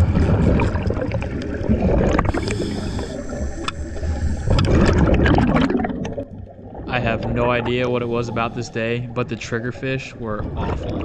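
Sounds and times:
water gurgling and sloshing: 0.0s - 11.0s
low rumble: 3.2s - 11.0s.

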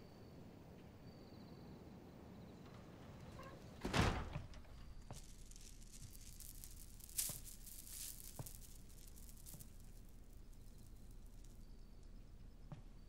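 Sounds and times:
door opening clunk: 2.6s - 5.1s
door thud: 3.4s - 5.2s.

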